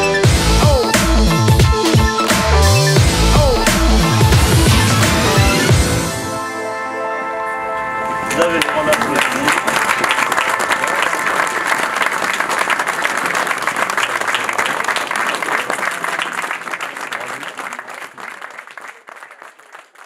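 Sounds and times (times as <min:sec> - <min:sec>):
crowd applauding: 0:08.3 - 0:20.0.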